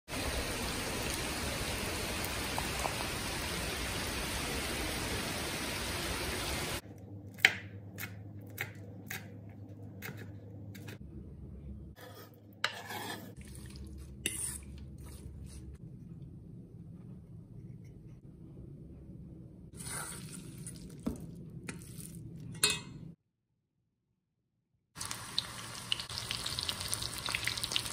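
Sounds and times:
heavy rain hissing: 0.1 - 6.8
spoon scraping in steel bowl: 12.0 - 15.4.

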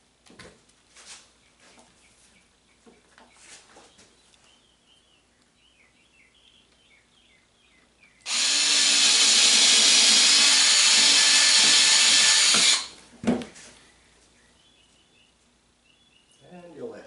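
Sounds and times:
cordless drill running: 8.3 - 13.0.

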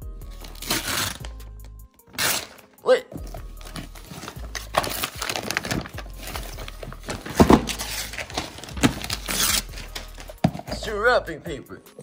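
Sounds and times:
wrapping paper tearing and crinkling: 0.4 - 1.4, 2.1 - 2.8, 3.6 - 10.4.

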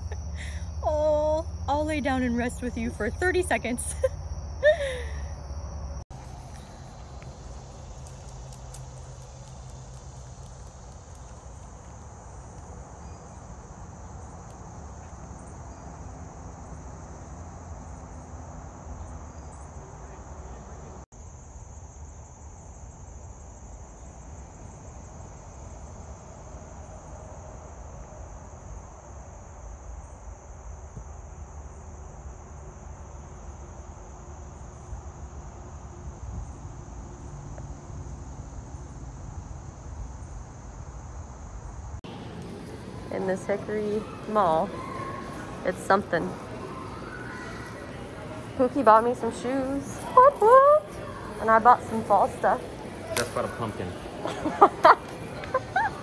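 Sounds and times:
high-pitched insect chorus: 0.0 - 42.0
low rumbling noise: 34.8 - 56.0.

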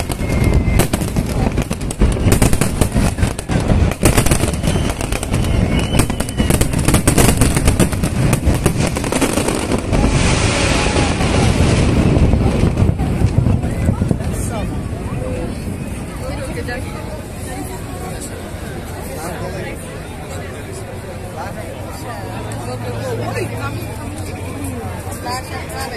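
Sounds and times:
fireworks bangs and crackling: 0.0 - 18.2
steady rushing noise: 0.0 - 25.9.

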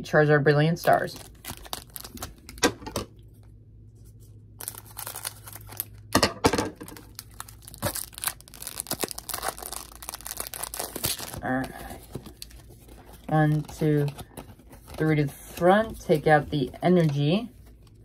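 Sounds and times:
foil wrapper tearing: 0.8 - 2.6, 4.6 - 6.1, 6.8 - 15.1
foil wrapper crinkling: 0.8 - 2.7, 4.6 - 6.2, 6.8 - 18.0.

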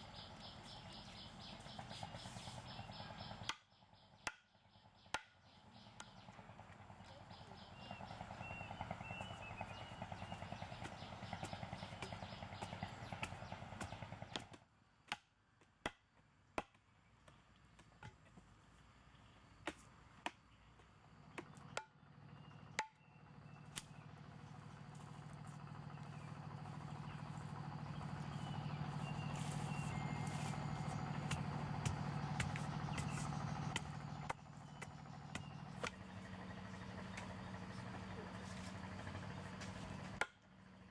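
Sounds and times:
steady low hum: 0.0 - 40.9
digging tool striking hard soil: 29.7 - 36.0.

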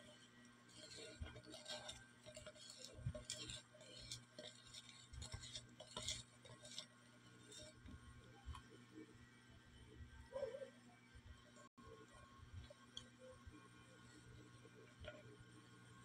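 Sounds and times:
utensil scraping plastic jar: 0.7 - 8.0.

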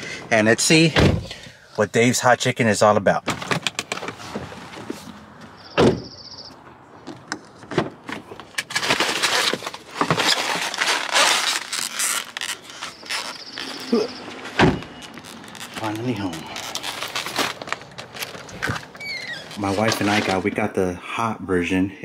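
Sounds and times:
car door shutting: 5.7 - 6.2, 14.4 - 15.2
plastic bag rustling: 8.7 - 14.2, 14.9 - 20.6.

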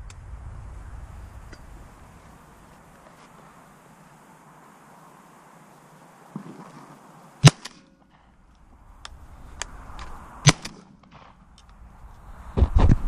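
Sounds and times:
shotgun shots: 7.4 - 7.9, 10.4 - 11.6.

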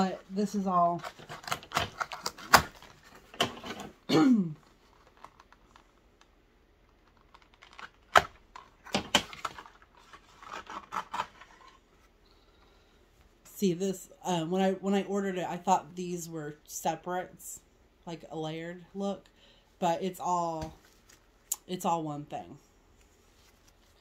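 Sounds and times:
plastic packaging rustling: 0.1 - 4.0, 4.6 - 12.0
packaging clicks: 1.0 - 3.8, 6.9 - 11.5.

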